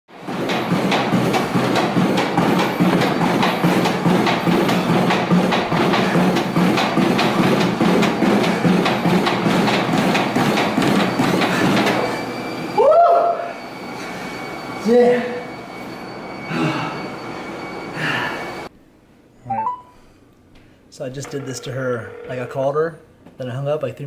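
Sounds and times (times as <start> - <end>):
footfalls thudding on treadmill: 0.2 - 12.2
music: 19.5 - 19.9.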